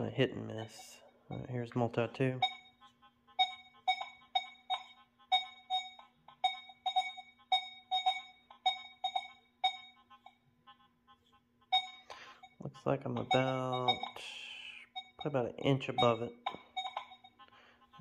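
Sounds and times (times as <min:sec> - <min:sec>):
metal detector beeps: 0:02.4 - 0:02.8, 0:03.4 - 0:10.4, 0:11.7 - 0:18.0.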